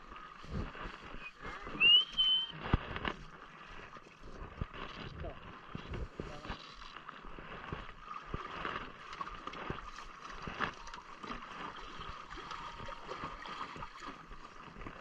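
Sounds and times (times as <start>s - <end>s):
water lapping against hulls: 0.0s - 15.0s.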